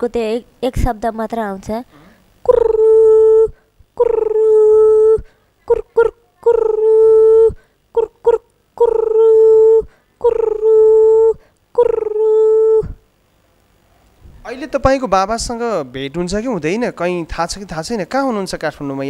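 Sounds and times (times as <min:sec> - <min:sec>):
woman imitating dove cooing: 0:02.4 - 0:13.1.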